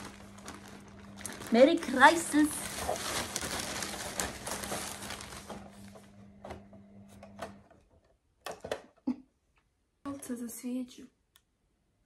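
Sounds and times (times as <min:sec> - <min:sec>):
packaging rustling: 0:00.0 - 0:06.2.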